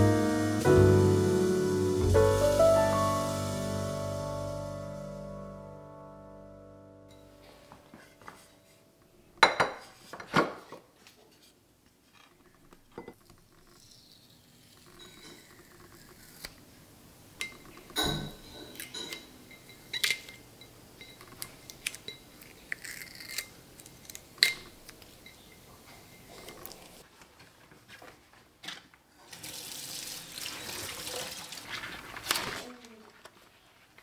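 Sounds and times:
glass jars clinking: 17.4 - 23.4.

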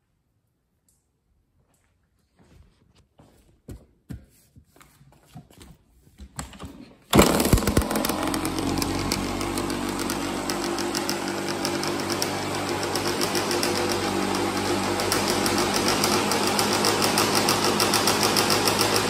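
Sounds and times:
kick-start knocks: 7.1 - 14.2
two-stroke engine running: 7.1 - 19.0.

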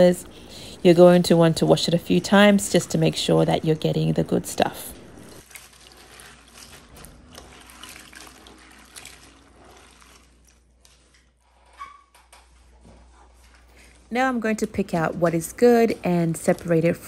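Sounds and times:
hand sloshing water in glass bowl: 5.4 - 11.1.

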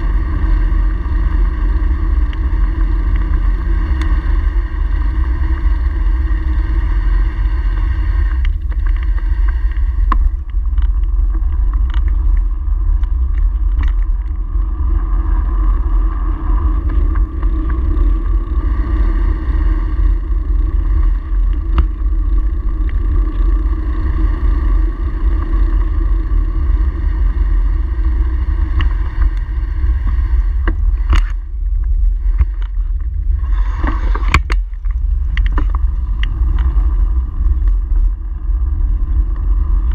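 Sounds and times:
faint constant hum: 0.0 - 39.9
wind and road rumble: 0.0 - 39.9.

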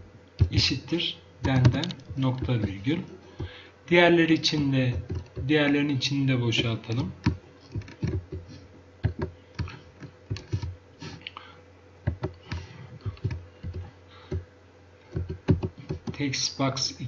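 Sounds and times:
computer keyboard typing: 1.4 - 3.6, 4.5 - 5.5, 6.7 - 10.7, 12.1 - 14.4, 15.1 - 16.2.

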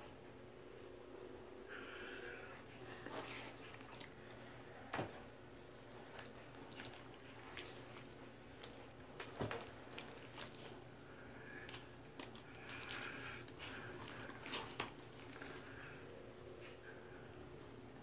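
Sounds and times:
wet slime squishing: 2.6 - 16.2.

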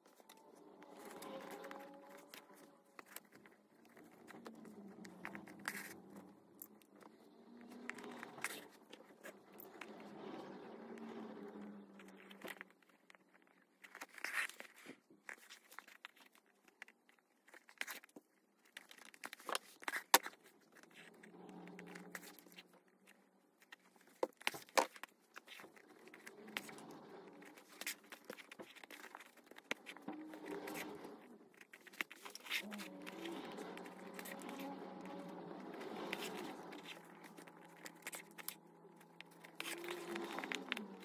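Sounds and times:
thread rasping through leather: 24.1 - 41.0.

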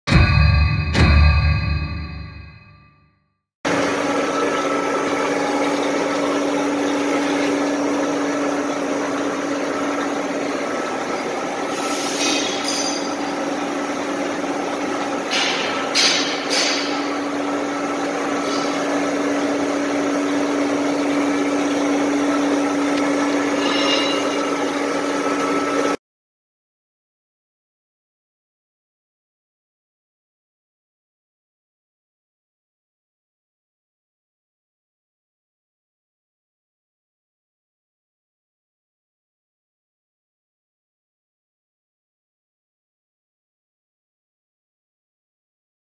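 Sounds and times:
lathe cutting steel: 3.7 - 26.0.

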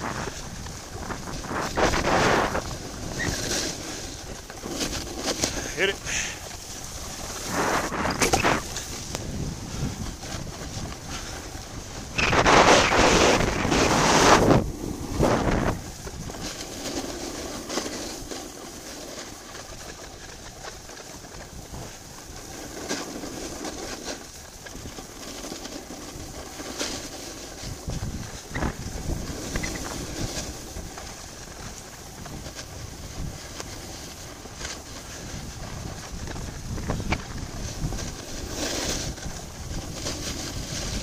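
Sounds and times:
wind rushing over microphone: 0.0 - 18.3, 27.0 - 41.0
ski edges scraping snow: 0.0 - 41.0
skis hissing on packed snow: 0.0 - 41.0.

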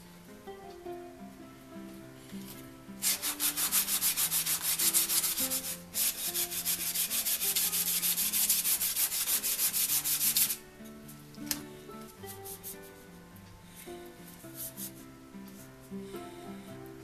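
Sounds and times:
sandpaper rubbing on wood: 3.0 - 10.6, 12.2 - 12.9, 14.5 - 15.0.

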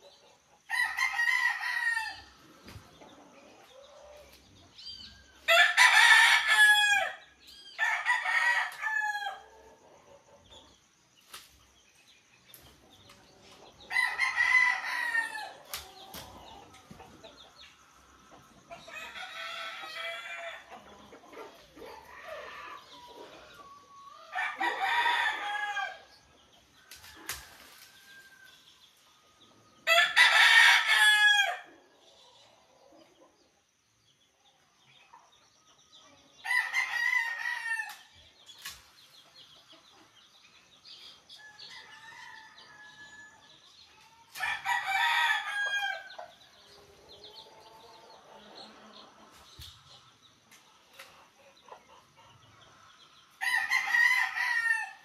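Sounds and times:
roosters crowing: 0.7 - 2.5, 5.4 - 9.8, 13.8 - 16.6, 18.8 - 26.1, 29.8 - 31.7, 36.4 - 38.1, 41.3 - 43.6, 44.3 - 49.0, 53.4 - 55.0.

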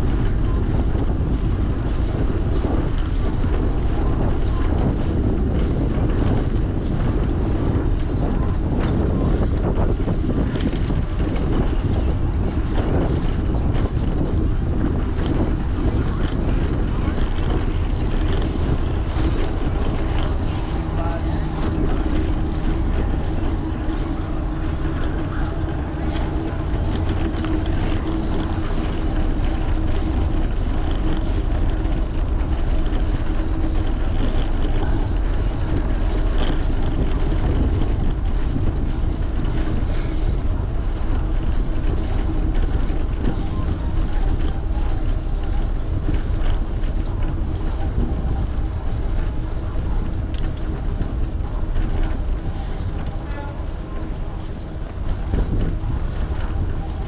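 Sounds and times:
bicycle rolling over bricks: 0.0 - 57.0
wind noise on microphone: 0.0 - 57.0.

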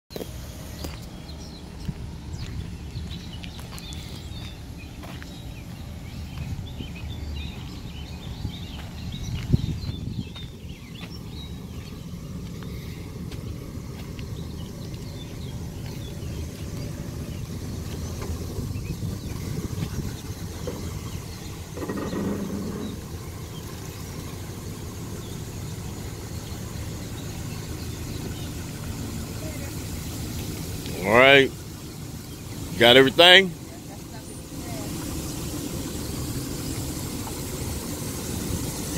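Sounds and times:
birds chirping: 0.1 - 38.9
truck engine idling: 0.1 - 38.9.

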